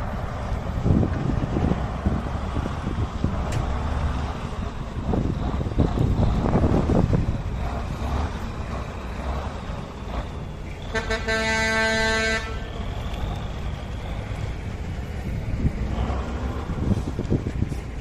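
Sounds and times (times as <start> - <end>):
wind on microphone: 0.0 - 9.4, 13.9 - 18.0
truck engine running: 0.0 - 18.0
horn blast: 10.9 - 12.7.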